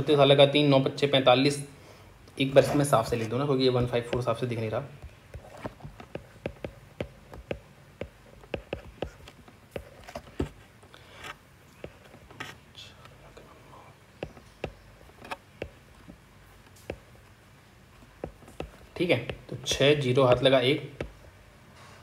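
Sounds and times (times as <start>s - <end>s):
stylus tapping on tablet screen: 3.7s - 10.5s, 14.2s - 17.3s, 18.0s - 21.2s.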